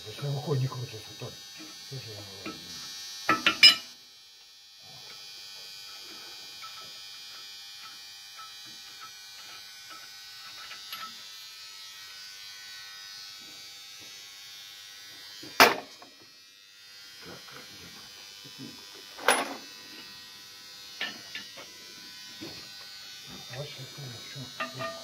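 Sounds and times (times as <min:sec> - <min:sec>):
milling machine buzzing: 0:00.0 - 0:04.0, 0:04.8 - 0:25.0
sharp metal clank: 0:03.3 - 0:03.9, 0:15.6 - 0:15.9, 0:19.2 - 0:19.6.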